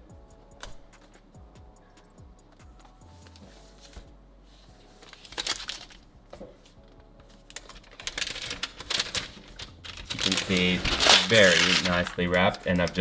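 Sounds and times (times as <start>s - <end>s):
soft background music: 0.0s - 13.0s
paper wrap crinkling: 4.9s - 6.1s, 7.3s - 13.0s.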